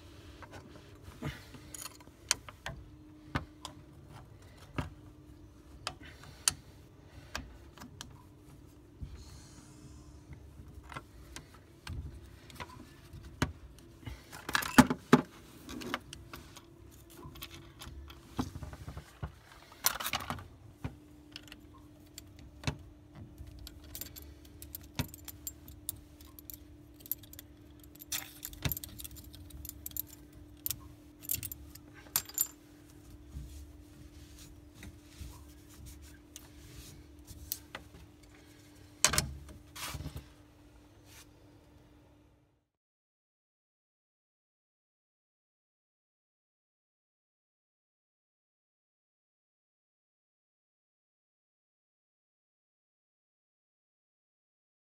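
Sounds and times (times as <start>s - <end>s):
faint steady hum: 0.0s - 42.6s
tools clicking and clinking: 23.4s - 32.6s.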